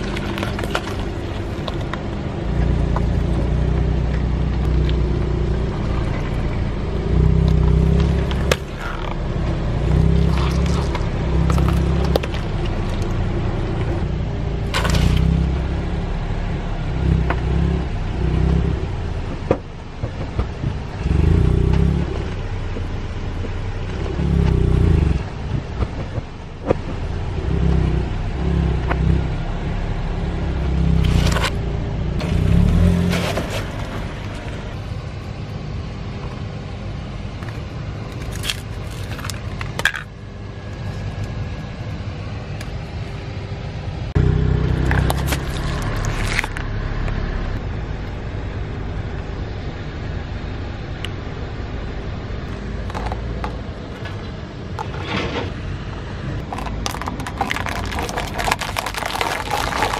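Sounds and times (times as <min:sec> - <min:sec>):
objects crunching under tyres: 0:00.0 - 0:14.0, 0:14.6 - 0:15.7, 0:30.6 - 0:31.6, 0:32.2 - 0:35.0, 0:37.4 - 0:41.8, 0:44.2 - 0:47.3, 0:52.5 - 0:59.9
car engine running: 0:00.0 - 0:59.9.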